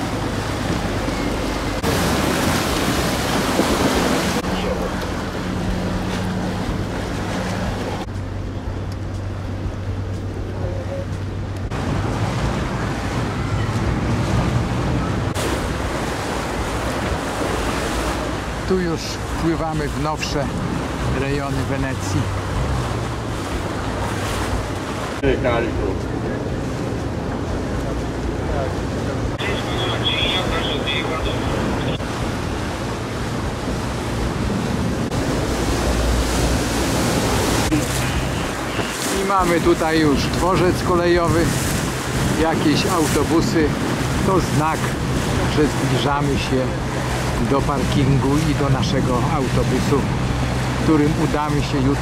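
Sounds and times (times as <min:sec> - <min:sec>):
wind noise: 0:00.0 - 0:04.6, 0:30.1 - 0:49.1
boat engine hum: 0:00.0 - 0:52.0
water wash: 0:00.0 - 0:52.0.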